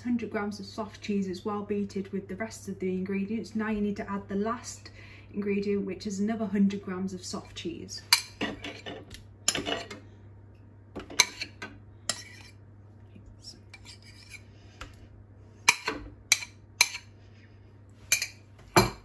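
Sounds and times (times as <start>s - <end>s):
metal spoon scraping a bowl: 8.1s - 10.0s, 11.1s - 12.6s, 13.7s - 14.5s, 15.7s - 17.1s.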